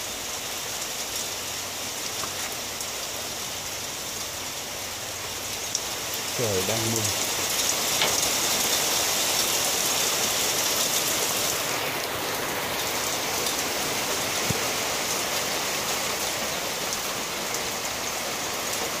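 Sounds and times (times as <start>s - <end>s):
steady rain falling: 0.0s - 19.0s.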